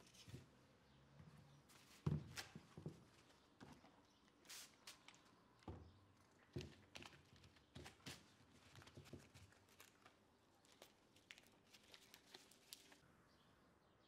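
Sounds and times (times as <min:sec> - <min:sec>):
paper and foil crinkling: 0:06.9 - 0:13.0.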